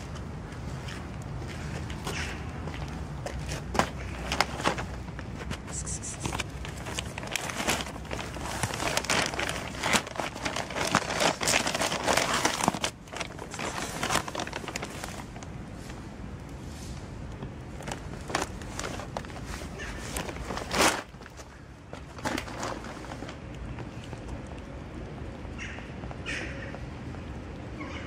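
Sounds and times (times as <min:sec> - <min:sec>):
plastic packaging crinkling: 0:03.6 - 0:15.5, 0:17.8 - 0:23.5.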